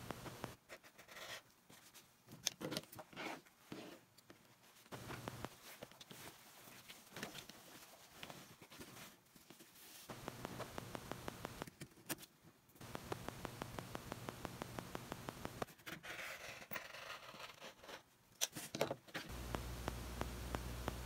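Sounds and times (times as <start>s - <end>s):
faint rapid ticking: 10.1s - 11.7s, 12.8s - 15.7s, 19.3s - 21.0s
clicks: 10.1s - 11.8s, 12.8s - 15.7s, 19.3s - 21.0s
low hum: 19.3s - 21.0s.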